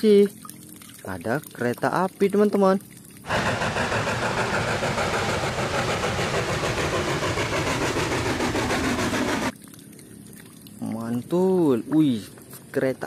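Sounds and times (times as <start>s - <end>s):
steam locomotive running: 3.3s - 9.5s.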